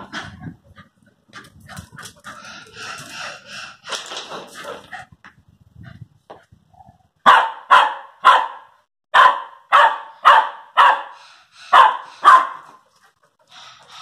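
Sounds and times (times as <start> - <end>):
dog barking: 7.2 - 12.7.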